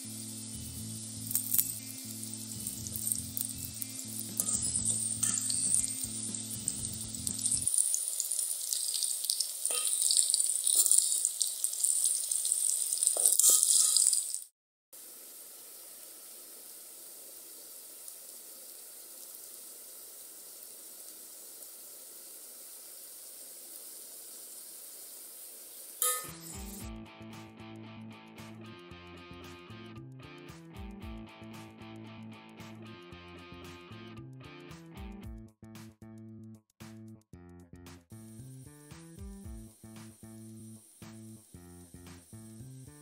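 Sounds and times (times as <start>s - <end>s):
background music: 0.0s - 7.8s, 26.0s - 36.0s
potato wedges sizzling in oil: 0.0s - 27.0s, 37.9s - 43.0s
metal spoon clinking on pan: 4.2s - 7.9s, 9.6s - 14.4s, 26.0s - 26.8s.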